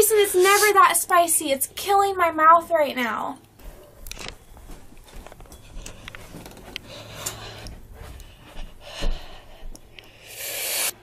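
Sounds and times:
small clicks and rustles: 4.0 - 8.3
person panting: 6.8 - 10.9.

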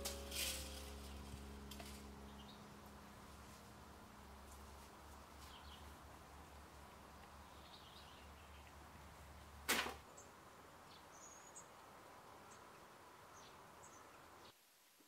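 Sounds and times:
low steady hum: 0.0 - 9.6.

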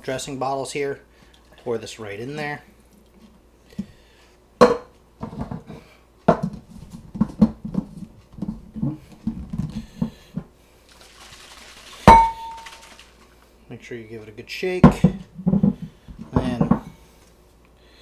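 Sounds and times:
liquid rushing: 10.9 - 13.2
glass bottle knocking on counter: 12.1 - 12.6.

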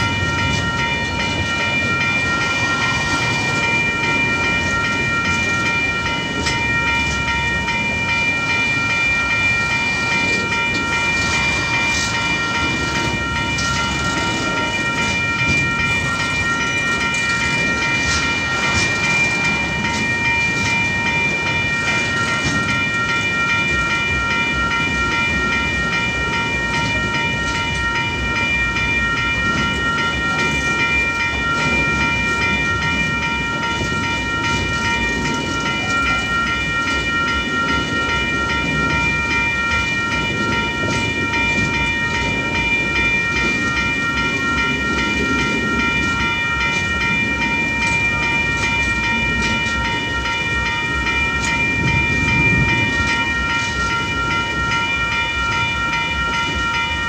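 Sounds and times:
freight train rolling past: 0.0 - 57.0
level-crossing alarm bells ringing: 0.0 - 57.0.

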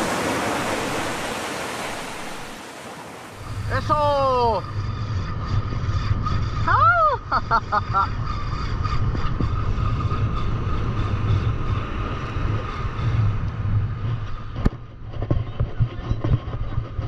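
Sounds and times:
breaking surf: 0.0 - 4.7
wind buffeting microphone: 0.0 - 17.0.

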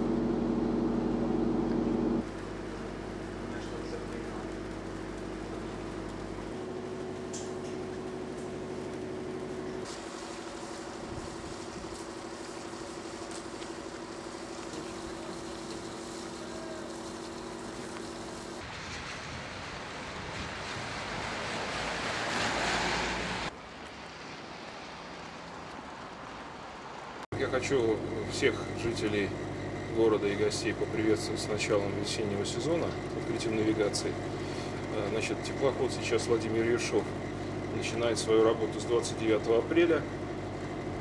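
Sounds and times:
steady machine hum: 0.0 - 18.6, 27.3 - 41.0
rushing wind noise: 18.6 - 22.6.

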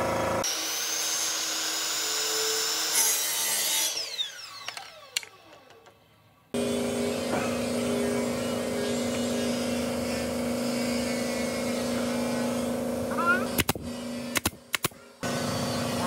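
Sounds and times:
machine motor humming: 6.6 - 14.5.

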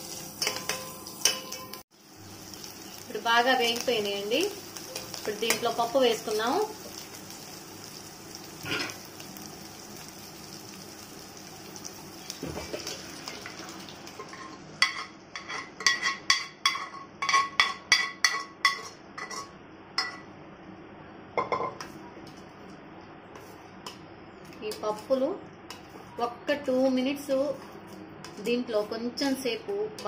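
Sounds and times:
tempering sizzling in oil: 0.0 - 20.2
steel ladle clinking on metal pots: 0.4 - 1.8, 14.2 - 20.2.

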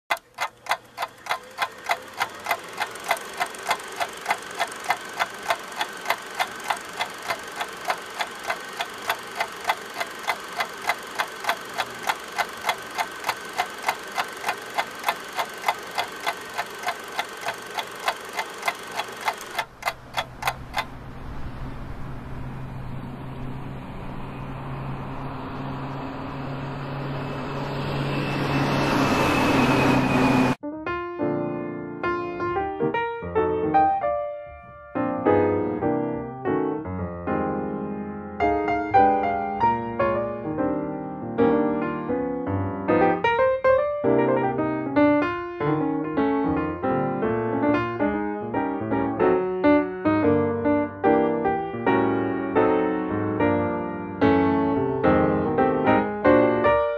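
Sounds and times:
fast even ticking: 0.1 - 21.0
low mechanical drone: 0.1 - 30.6.

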